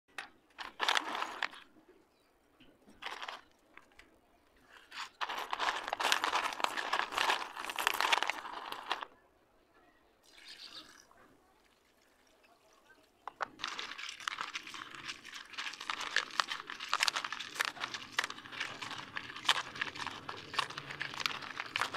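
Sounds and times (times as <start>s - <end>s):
pencil sticks clattering in plastic bowl: 0.2s - 1.6s, 3.0s - 3.4s, 4.7s - 9.1s, 13.3s - 21.9s.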